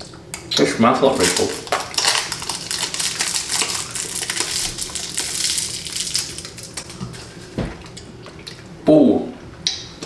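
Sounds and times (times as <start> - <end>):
candy wrapper crinkling: 1.1 - 7.0.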